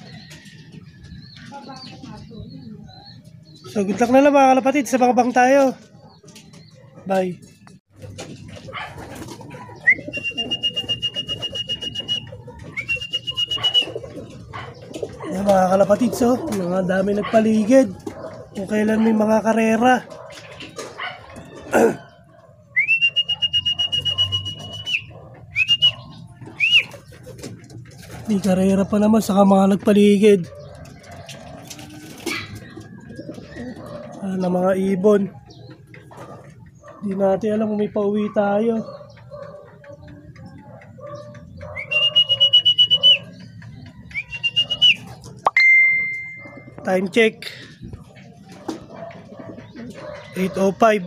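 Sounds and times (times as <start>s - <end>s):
faint cooing: 21.6s - 22.2s
short rising and falling whistles: 22.8s - 26.0s.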